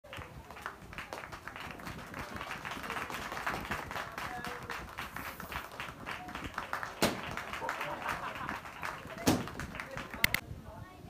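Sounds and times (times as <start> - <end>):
people clapping: 0.0 - 10.4.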